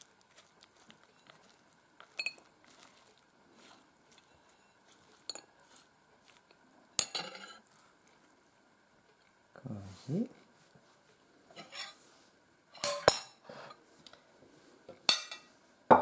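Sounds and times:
spoon clinking against plate: 2.1s - 2.4s, 15.1s - 15.5s
metal spoon scraping squash: 7.0s - 7.8s, 11.5s - 12.0s.

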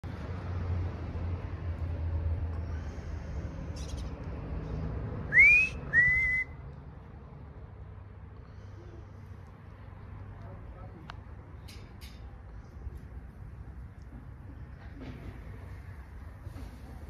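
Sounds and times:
short whistled notes: 5.3s - 6.6s.

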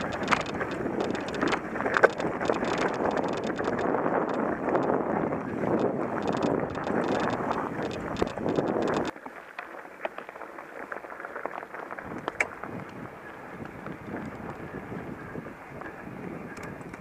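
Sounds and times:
clatter of small clicks: 0.0s - 4.9s, 5.7s - 10.3s
wind buffeting microphone: 0.0s - 9.2s, 11.7s - 17.0s
tyres crunching on dirt: 0.0s - 15.9s
bike rattling: 0.0s - 17.0s.

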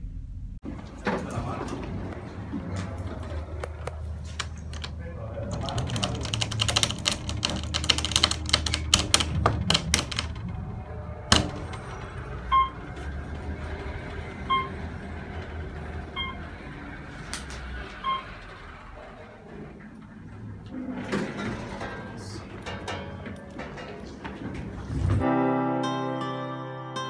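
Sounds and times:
elevator car hum: 0.0s - 25.5s
rapid clicks: 3.5s - 20.6s
elevator chime ding: 10.5s - 16.8s.

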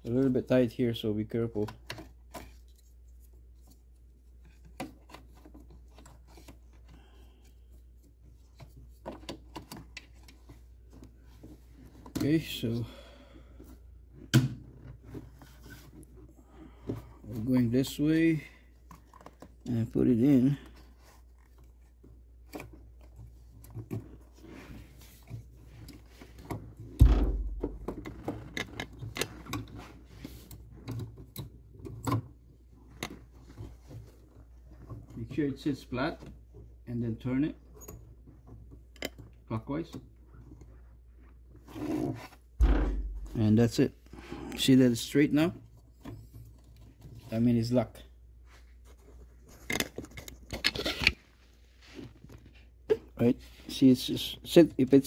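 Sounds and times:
loud dull thump: 27.0s - 28.0s, 42.6s - 43.4s
low steady hum: 27.0s - 28.5s, 42.6s - 44.4s.

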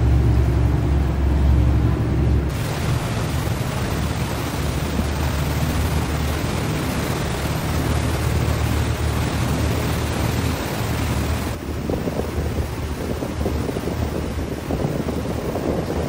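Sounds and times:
ferry engine humming: 0.0s - 16.0s
foaming water rushing: 0.0s - 16.0s.

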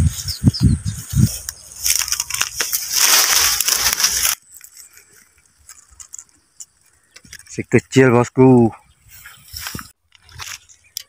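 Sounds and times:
dry leaves rustling and crackling: 0.9s - 6.3s.

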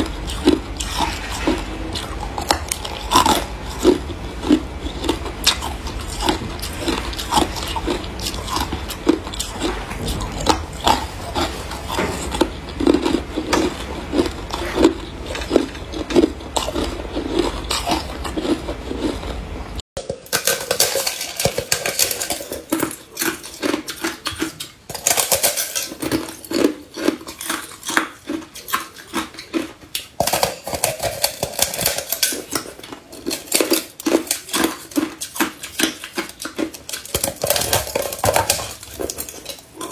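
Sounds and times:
low hum: 0.0s - 19.8s.

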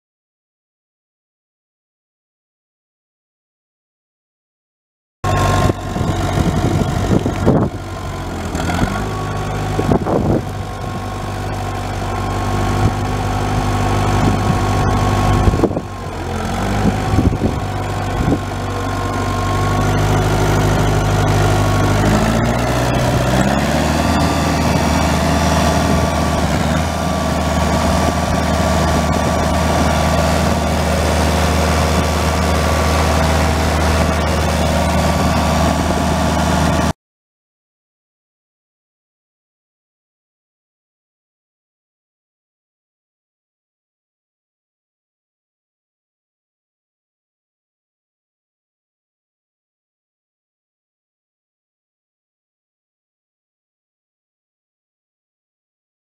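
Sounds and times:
tractor engine running: 5.2s - 36.9s.

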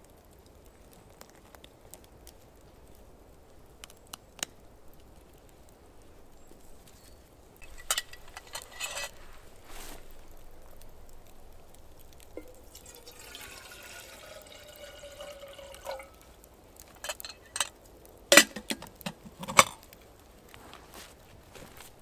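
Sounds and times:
liquid pouring into container: 12.3s - 17.6s.

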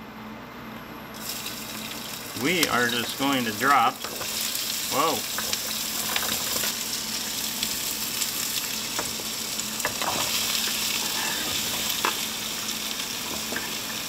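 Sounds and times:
vegetables sizzling in hot oil: 1.2s - 14.0s
knife scraping cutting board: 10.2s - 11.8s.

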